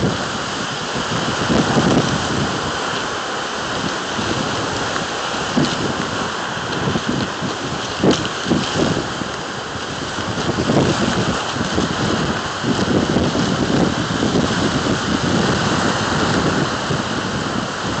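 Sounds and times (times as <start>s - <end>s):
surf breaking on rocky shore: 0.0s - 18.0s
wind buffeting microphone: 0.0s - 18.0s.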